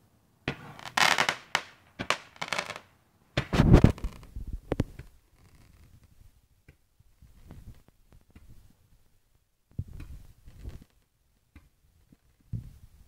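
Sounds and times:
fireworks bangs and crackling: 0.4 - 4.0.

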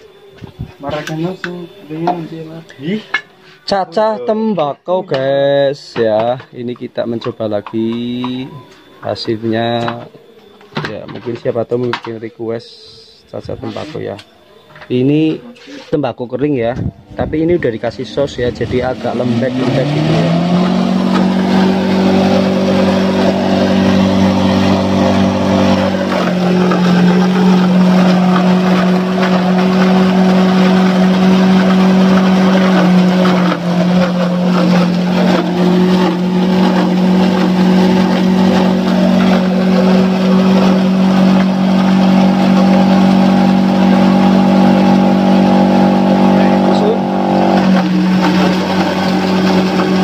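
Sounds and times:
electric motor humming: 17.4 - 50.0
tobacco being shredded: 19.6 - 50.0.

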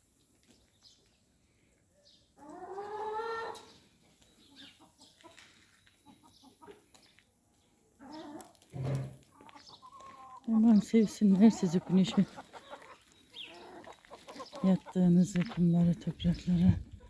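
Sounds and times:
hens clucking softly: 2.4 - 3.7, 4.5 - 7.0, 9.3 - 15.6.

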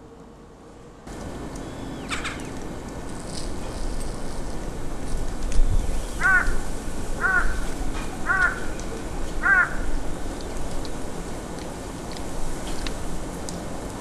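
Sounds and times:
crow cawing: 6.2 - 8.8, 9.4 - 10.0.

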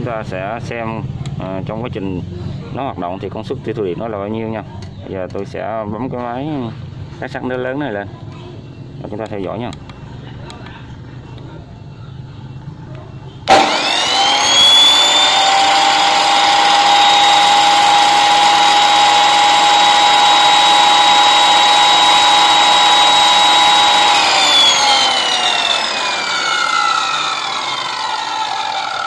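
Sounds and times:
chop saw motor whine: 13.4 - 29.0.

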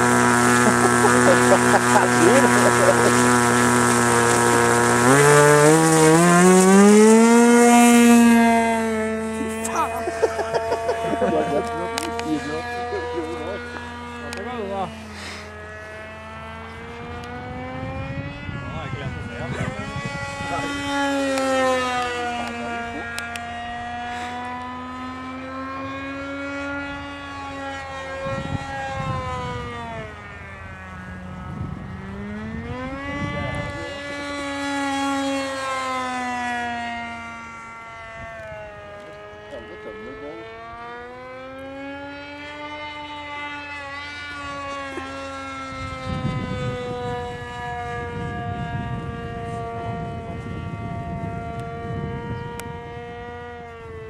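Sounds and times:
model aircraft engine revving: 0.0 - 54.0
wind buffeting microphone: 16.8 - 21.1, 28.2 - 34.6, 45.7 - 54.0.

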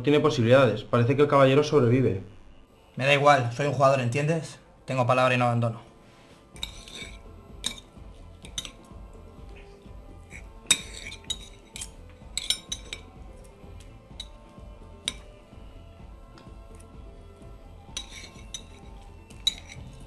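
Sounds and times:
cutlery clinking on a plate: 6.6 - 8.9, 10.3 - 13.2, 15.0 - 15.3, 17.9 - 20.0.

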